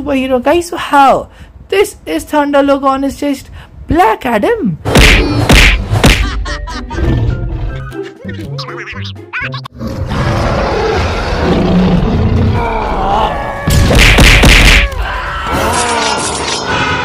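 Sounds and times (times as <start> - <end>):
fight impacts and thuds: 4.9 - 6.3, 13.7 - 15.0
grunting voices: 10.0 - 13.6.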